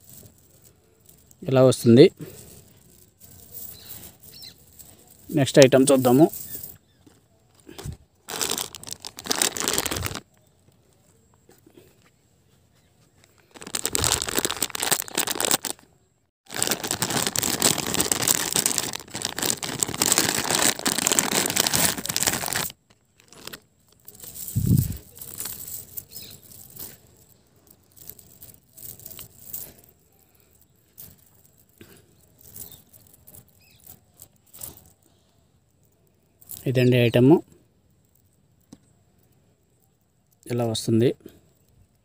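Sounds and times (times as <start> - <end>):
plastic bag crinkling and tearing: 0.0 - 10.5, 13.3 - 15.8, 16.5 - 35.0
metal necklaces clinking: 0.0 - 10.6, 13.4 - 15.7, 16.5 - 36.8.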